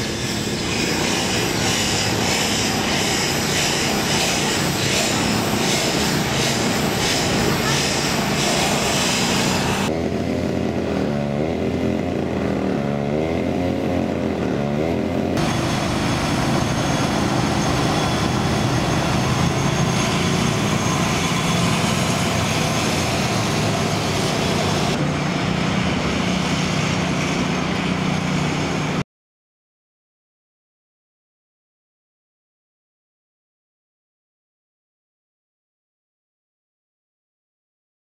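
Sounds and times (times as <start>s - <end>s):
road noise: 0.0s - 29.0s
vehicle engine: 0.0s - 29.0s.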